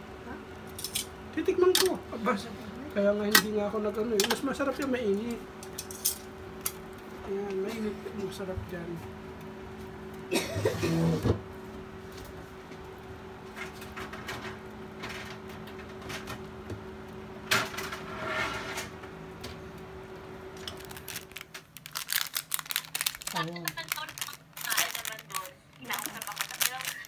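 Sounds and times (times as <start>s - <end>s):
appliance hum: 0.0s - 27.0s
handling and rustling noises: 20.6s - 27.0s.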